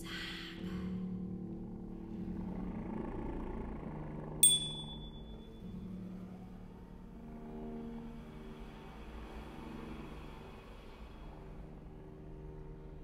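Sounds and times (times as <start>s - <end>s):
small metal bell ringing: 4.4s - 5.5s.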